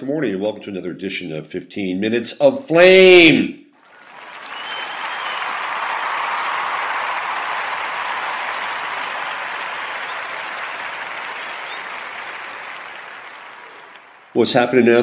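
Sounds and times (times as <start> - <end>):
audience applause: 3.8 - 14.5.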